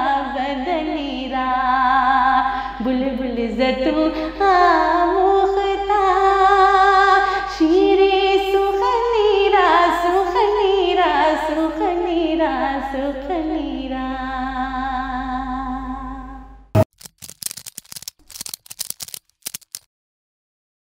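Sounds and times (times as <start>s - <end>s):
woman singing unaccompanied: 0.0s - 16.3s
sharp click: 16.8s - 19.9s.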